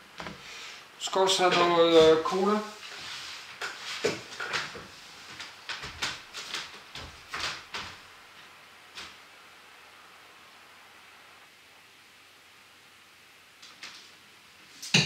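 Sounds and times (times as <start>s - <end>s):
footsteps walking away: 1.3s - 9.2s.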